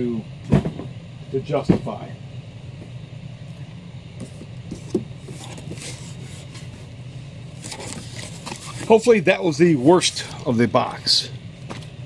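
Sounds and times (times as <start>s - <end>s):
low mechanical hum: 0.0s - 12.0s
rustling of paper and cardboard: 7.6s - 9.1s.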